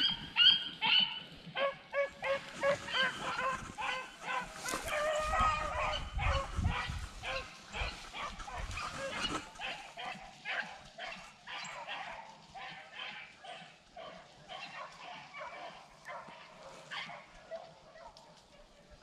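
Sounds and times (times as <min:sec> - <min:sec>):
dogs baying: 0:00.0 - 0:18.9.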